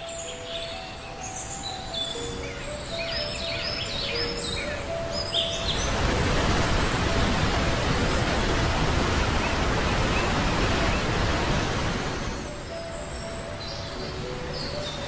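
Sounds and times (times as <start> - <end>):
birds chirping: 0.0 - 15.0
waterfall rushing: 3.2 - 15.0.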